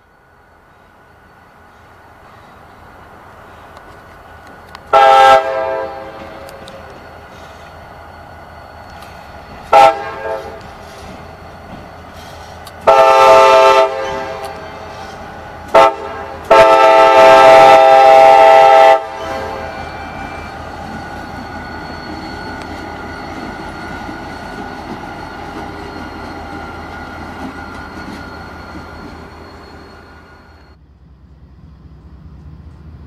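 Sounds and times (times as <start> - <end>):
locomotive air horn blasts: 4.9 - 6.5, 9.6 - 10.7, 12.8 - 20.7.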